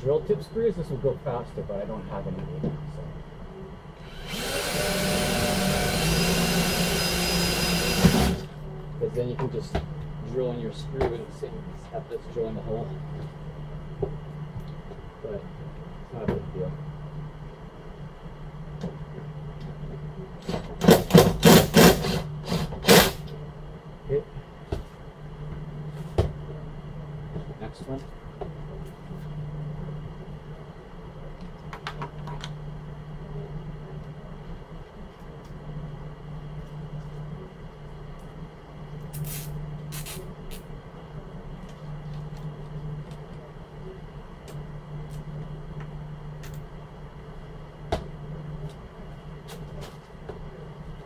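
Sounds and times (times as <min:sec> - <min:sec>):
low machinery hum: 0:00.0 - 0:51.0
cordless drill driving screws: 0:04.0 - 0:08.4.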